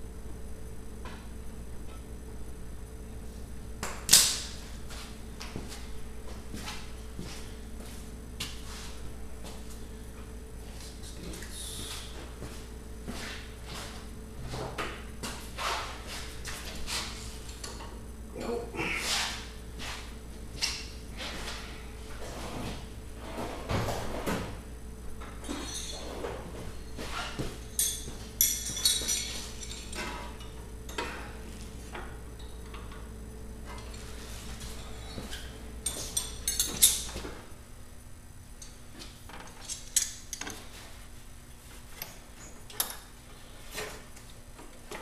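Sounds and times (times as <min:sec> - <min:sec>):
steady low hum: 0:00.0 - 0:45.0
hand tools clinking on metal: 0:25.4 - 0:26.1, 0:27.7 - 0:31.1, 0:35.8 - 0:37.1.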